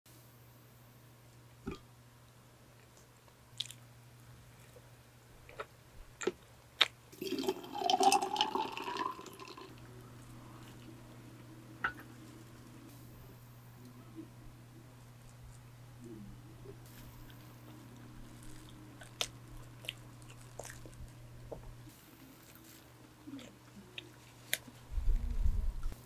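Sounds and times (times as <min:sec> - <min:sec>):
electric fan hum: 0:00.1 - 0:26.0
milk pouring into glass jar: 0:07.2 - 0:09.7.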